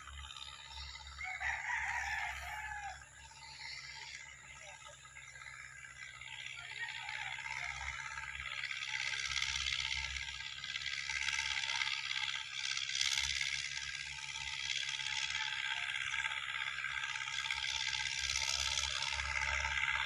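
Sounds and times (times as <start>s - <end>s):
distant tractor engine running: 0.0s - 20.0s.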